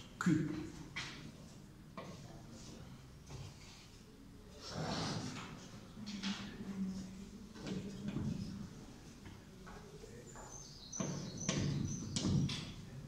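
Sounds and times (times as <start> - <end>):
chalk scraping and tapping: 1.0 - 4.0.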